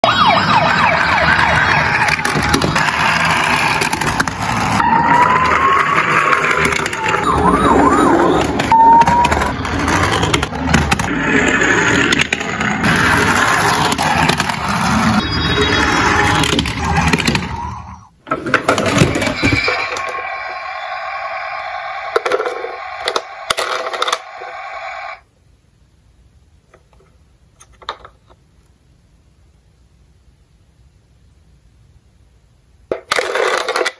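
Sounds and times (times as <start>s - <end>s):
toy ambulance sirens: 0.0s - 4.0s, 4.6s - 10.5s, 13.2s - 18.1s, 19.2s - 25.2s
toy vehicles rolling: 0.6s - 25.2s, 32.9s - 33.9s
plastic toy clicks and knocks: 32.9s - 33.9s.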